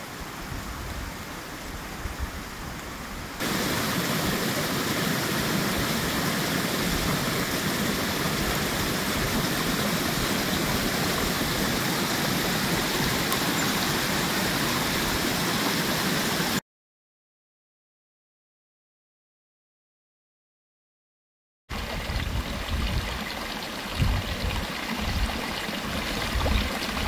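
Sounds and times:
brook splashing over stones: 3.4s - 16.6s, 21.7s - 27.0s.

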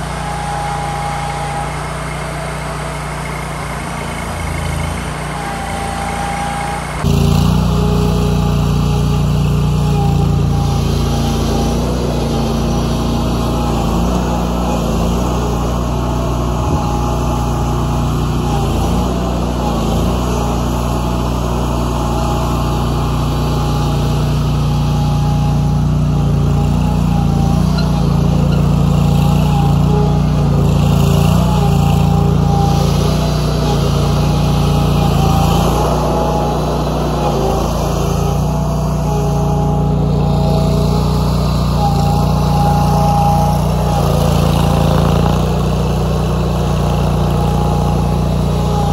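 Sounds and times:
cutter wheel grinding roots: 0.0s - 48.9s
stump grinder engine running: 0.0s - 48.9s.

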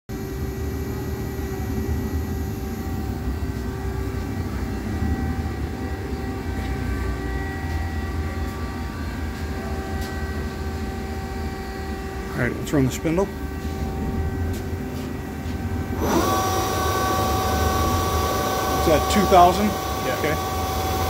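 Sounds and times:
machine electrical hum: 0.1s - 21.0s.

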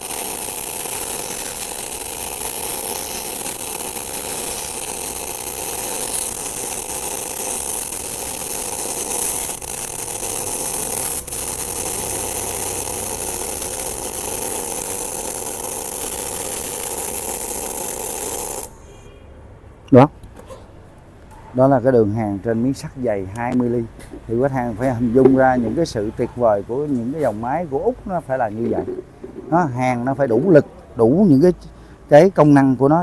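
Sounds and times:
welding arc hissing: 0.0s - 19.1s, 23.4s - 29.0s.

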